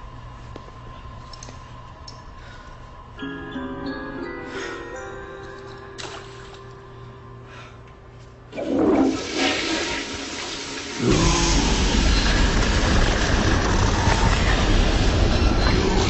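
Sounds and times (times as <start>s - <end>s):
toilet flushing: 8.5s - 13.5s.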